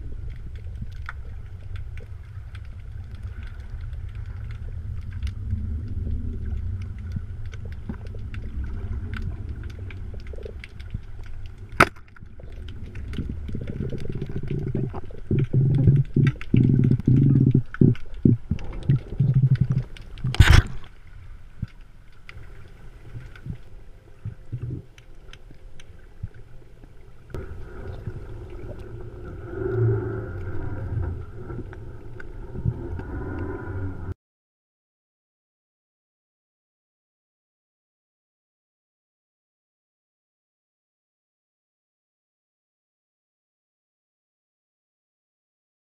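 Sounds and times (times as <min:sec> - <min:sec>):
muffled underwater rumble: 0:00.0 - 0:34.2
irregular gurgling: 0:13.1 - 0:20.9.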